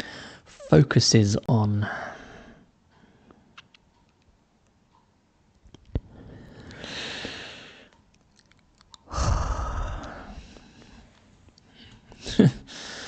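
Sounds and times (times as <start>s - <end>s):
computer mouse clicks: 3.6s - 6.8s, 7.9s - 9.1s
man breathing out: 9.1s - 11.0s.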